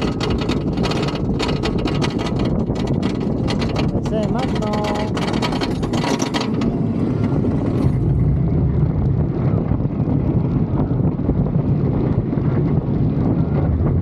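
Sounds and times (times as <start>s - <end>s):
roller coaster rumbling on track: 0.0s - 14.0s
wind buffeting microphone: 0.0s - 14.0s.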